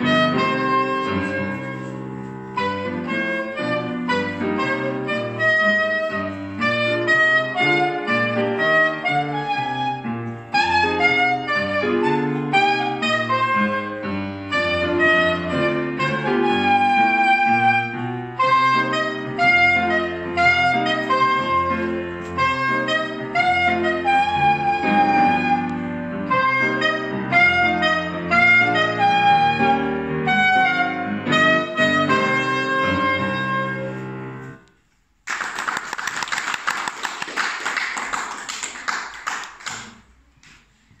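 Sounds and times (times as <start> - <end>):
piano chords: 0.0 - 34.7
alto saxophone melody: 0.0 - 34.8
applause: 35.2 - 40.2.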